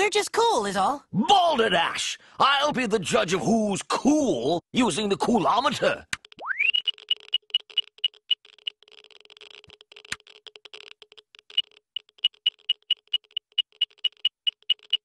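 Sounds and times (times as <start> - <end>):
fast faint crackling: 6.0 - 15.0
short high electronic beeps: 6.4 - 8.3, 11.6 - 15.0.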